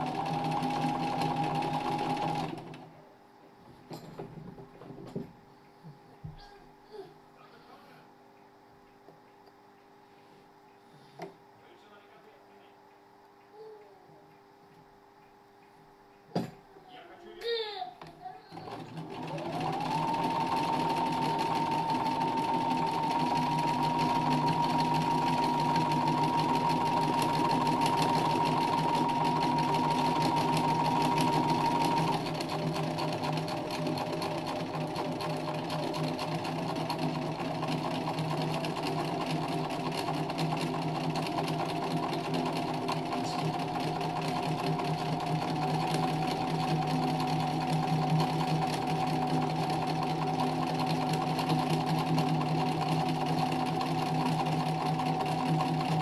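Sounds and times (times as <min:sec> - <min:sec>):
sewing machine stitching: 0:00.0 - 0:02.9, 0:18.5 - 0:56.0.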